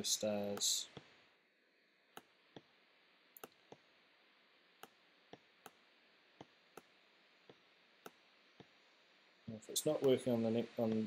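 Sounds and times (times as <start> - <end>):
computer mouse clicking: 2.1 - 2.3, 3.4 - 3.8, 4.8 - 5.8, 6.4 - 6.9.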